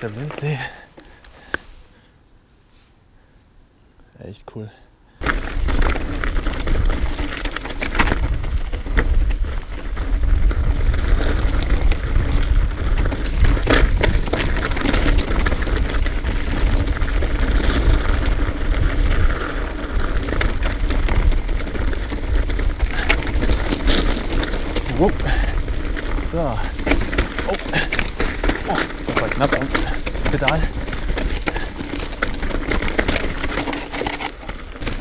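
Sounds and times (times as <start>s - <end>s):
bike tyres crunching over ground: 0.0s - 2.1s, 5.2s - 35.0s
bike clicks and rattles: 5.2s - 35.0s
wind rumble on microphone: 5.4s - 33.2s.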